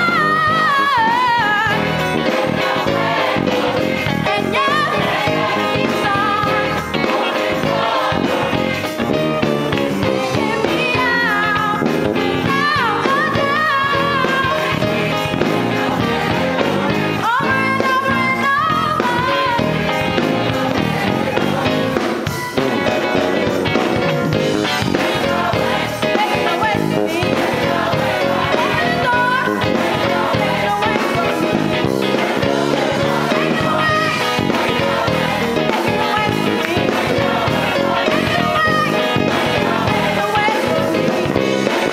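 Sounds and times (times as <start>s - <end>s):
gospel choir singing: 0.0s - 41.9s
instrumental accompaniment: 0.0s - 41.9s.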